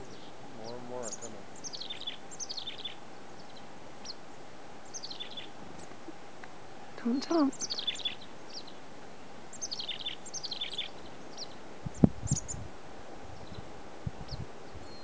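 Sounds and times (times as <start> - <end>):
chickadees calling: 0.0 - 6.3, 7.0 - 12.6.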